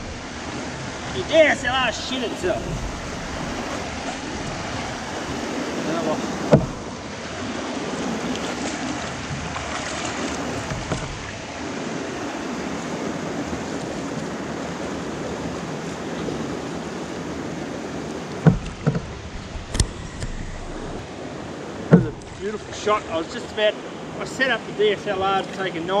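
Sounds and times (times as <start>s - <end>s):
water rushing over riffle: 0.0s - 14.8s, 17.8s - 23.3s
sharp knock on canoe: 2.5s - 7.0s, 10.6s - 11.4s, 18.3s - 21.0s, 21.8s - 22.4s.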